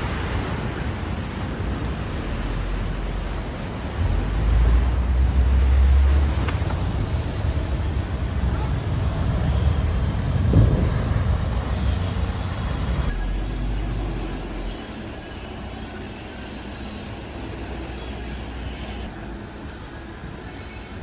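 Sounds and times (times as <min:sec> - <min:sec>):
tugboat diesel engine rumbling: 0:00.0 - 0:21.0
water surging and sloshing: 0:00.0 - 0:21.0.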